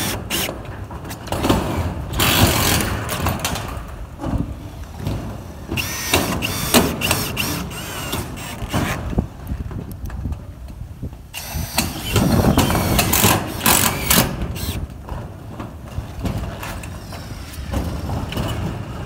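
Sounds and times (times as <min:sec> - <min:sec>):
screw gun driving screws into metal: 0:00.0 - 0:00.6, 0:05.8 - 0:09.1, 0:11.4 - 0:14.8.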